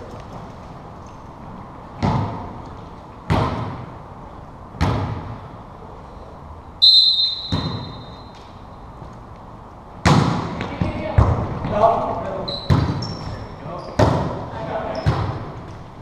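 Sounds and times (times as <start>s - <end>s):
referee whistle blast: 6.8s - 8.3s
ball bouncing on hardwood floor: 12.7s - 13.4s.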